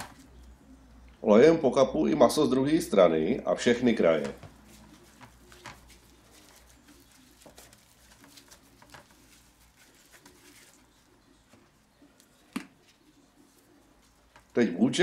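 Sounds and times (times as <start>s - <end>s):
gloved hands rubbing meat: 3.8s - 12.2s, 12.9s - 14.6s.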